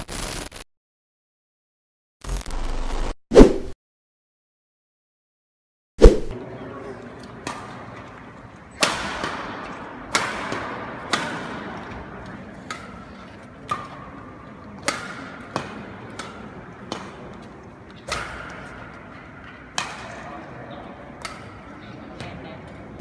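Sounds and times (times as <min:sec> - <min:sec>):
badminton racket hitting shuttlecock: 0:08.8 - 0:11.8, 0:14.8 - 0:17.4, 0:18.0 - 0:20.3.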